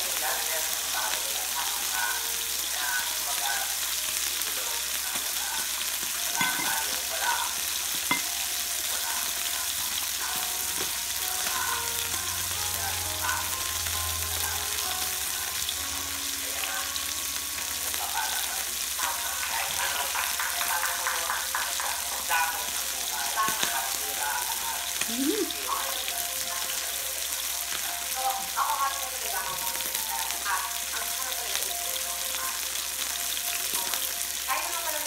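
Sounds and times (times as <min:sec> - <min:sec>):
beef sizzling on grill: 0:00.0 - 0:35.0.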